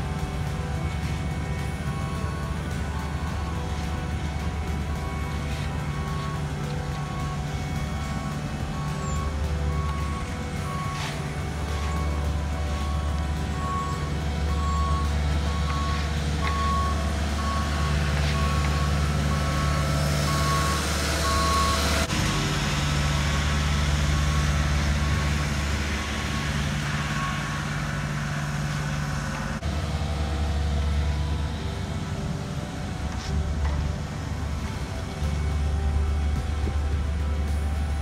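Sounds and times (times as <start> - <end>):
backup alarm beeping: 0.0 - 29.6
diesel paving machines running: 0.0 - 38.0.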